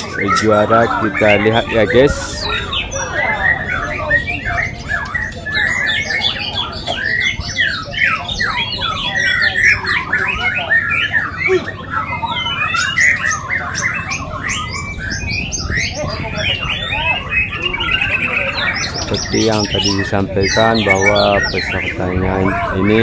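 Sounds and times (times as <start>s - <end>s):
chorus of birds singing: 0.0s - 23.0s.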